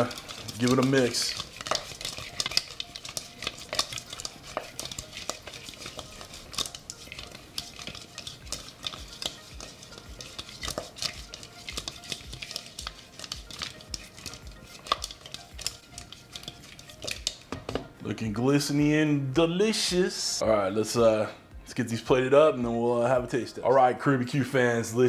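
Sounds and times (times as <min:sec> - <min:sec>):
chicken wings tossed in a bowl: 0:00.0 - 0:17.4.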